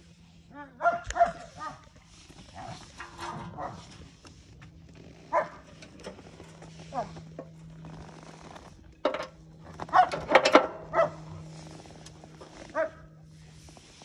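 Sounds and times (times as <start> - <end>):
steady low hum: 0.0 - 14.0
dog barking: 0.6 - 1.8, 3.4 - 3.9, 5.3 - 5.6, 9.9 - 11.3, 12.7 - 13.1.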